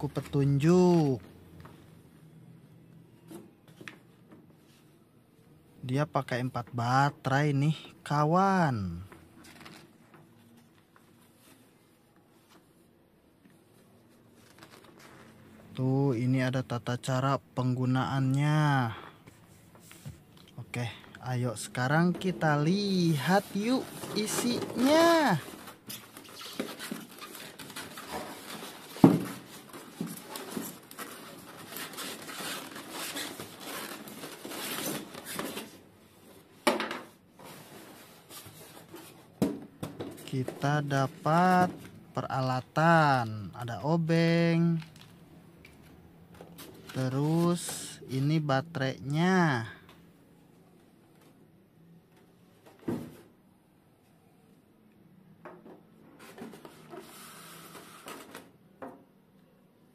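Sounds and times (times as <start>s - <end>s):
booklet pages turning: 9.4s - 15.9s, 21.7s - 35.8s, 44.3s - 48.5s
foam packaging creaking: 14.2s - 15.6s, 21.6s - 35.8s.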